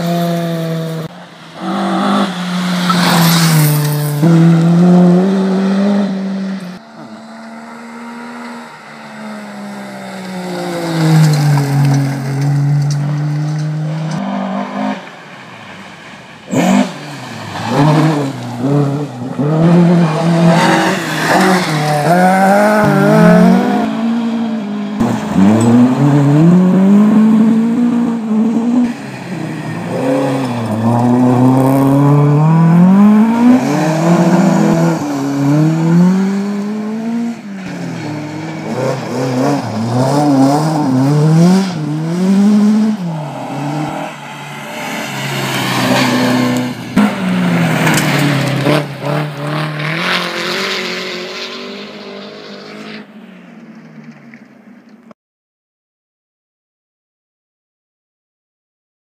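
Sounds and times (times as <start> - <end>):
rally car engine revving hard: 0.0 - 8.6, 16.5 - 29.0, 29.8 - 53.0.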